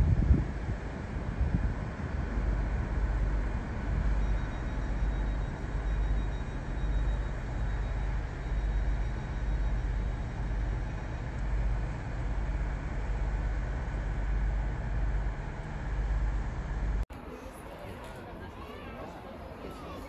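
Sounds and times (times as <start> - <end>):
diesel train low rumble: 0.0 - 20.0.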